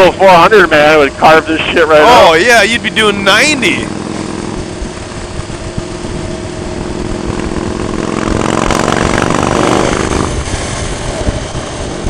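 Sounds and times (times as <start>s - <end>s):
motorcycle engine running: 0.0s - 12.0s
wind and road noise: 0.0s - 12.0s.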